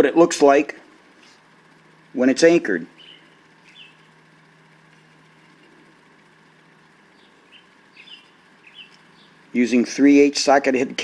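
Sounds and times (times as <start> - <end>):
faint background hum: 0.0 - 11.0
faint high chirps: 3.0 - 4.2, 7.1 - 9.5.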